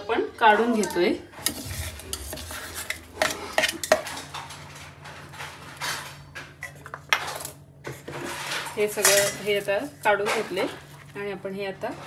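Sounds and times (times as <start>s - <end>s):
steel kitchenware clinking: 8.7s - 10.7s.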